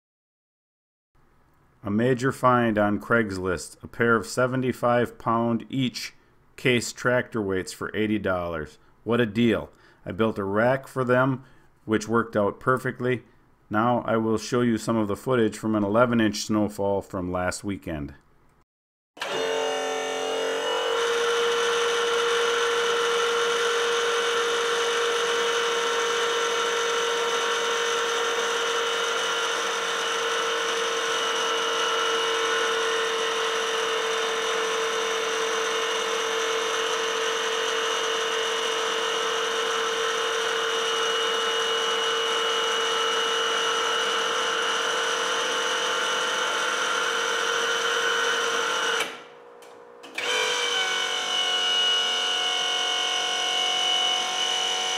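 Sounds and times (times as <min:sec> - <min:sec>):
machine motor high whine: 0:19.2 - 0:54.9.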